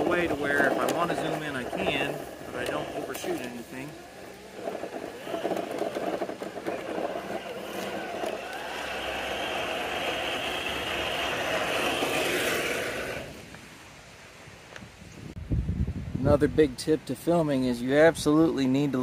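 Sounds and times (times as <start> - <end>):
rc truck electric motor whining: 1.7 - 13.4.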